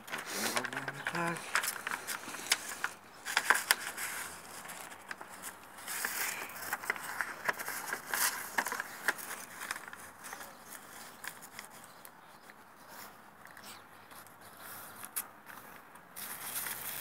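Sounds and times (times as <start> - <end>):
paper being folded: 0.0 - 13.6.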